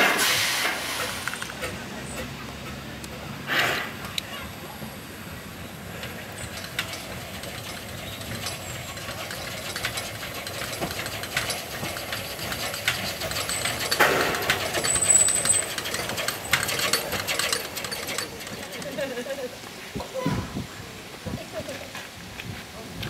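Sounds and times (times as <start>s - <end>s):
steam locomotive hissing steam: 0.0s - 23.0s
metallic clicks and clanks: 6.0s - 19.4s.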